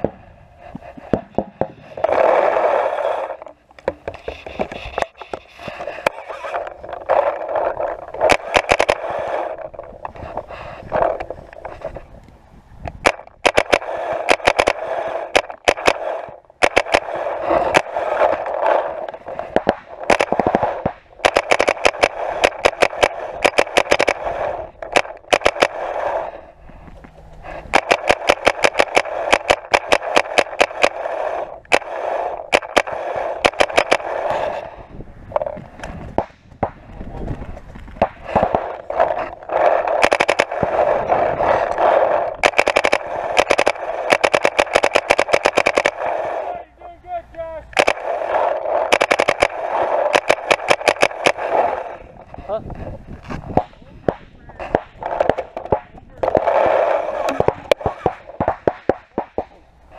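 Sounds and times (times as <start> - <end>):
paintball markers firing: 0.9 - 11.9, 12.9 - 46.6, 47.7 - 52.4, 53.2 - 59.7.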